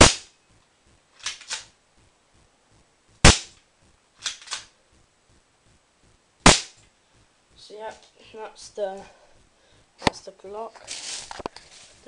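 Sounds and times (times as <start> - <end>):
airsoft pistol shots: 0.0 - 0.3, 3.2 - 3.6, 6.4 - 6.8.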